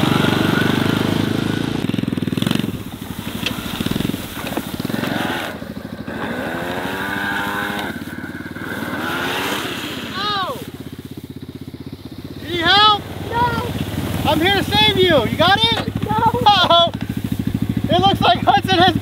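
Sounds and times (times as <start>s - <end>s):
motor whine rising and falling: 0.0s - 10.3s
loud low engine rattle: 0.0s - 19.0s.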